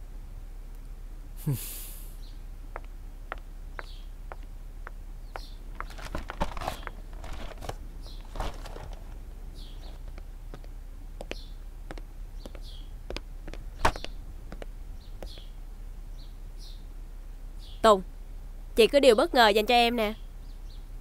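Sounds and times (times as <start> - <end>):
light rustling: 5.4 - 15.5.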